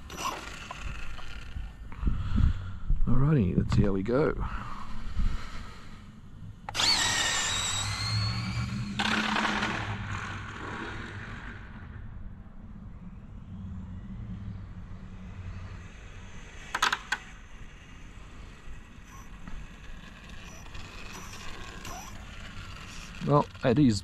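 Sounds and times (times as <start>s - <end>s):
electric motor whine: 0.0s - 1.8s, 6.6s - 11.2s, 15.2s - 24.0s.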